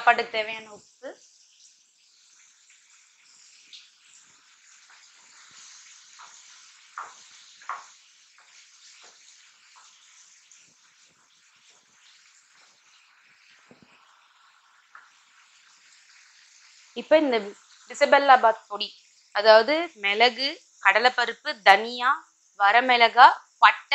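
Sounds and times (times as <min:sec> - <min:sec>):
vegetables sizzling in oil: 0:00.0 - 0:23.9
spatula scraping and tapping pan: 0:03.6 - 0:12.9
sharp knocks on pan: 0:07.0 - 0:07.9.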